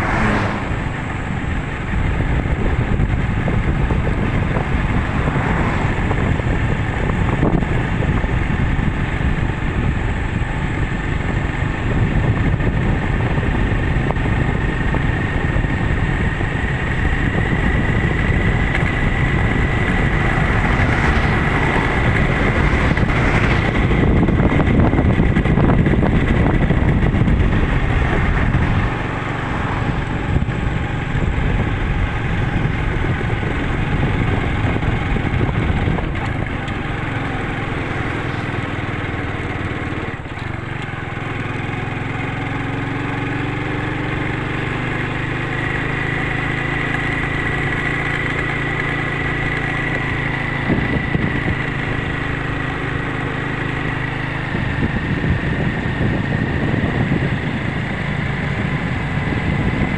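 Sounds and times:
oncoming car passing: 0.0 - 8.1, 17.7 - 40.3
vehicle engine and tyre noise: 0.0 - 59.9
wind on microphone: 0.0 - 59.9.

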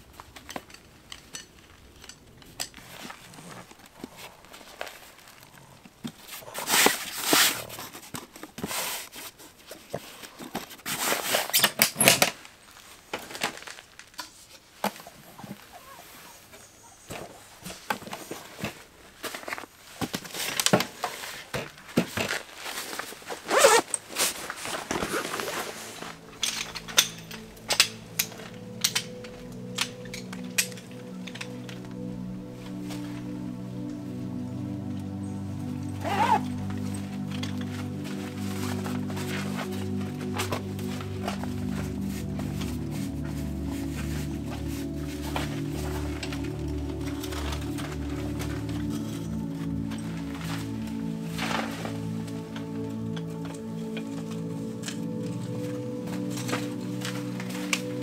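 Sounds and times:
rustling and crinkling: 0.0 - 58.0
background music with held notes: 24.6 - 58.0.

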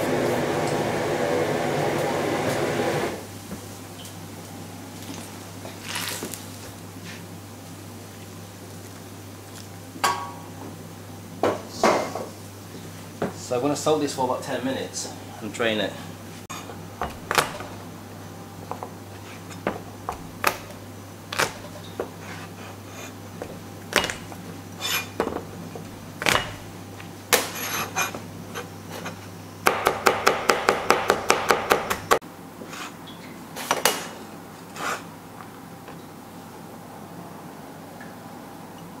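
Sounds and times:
cleaver chopping on cutting board: 17.0 - 17.8, 29.6 - 32.1.

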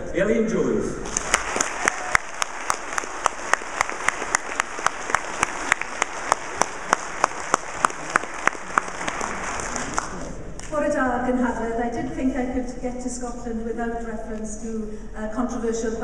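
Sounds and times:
audience applauding: 1.0 - 10.7
hands clapping close by: 1.1 - 10.8.

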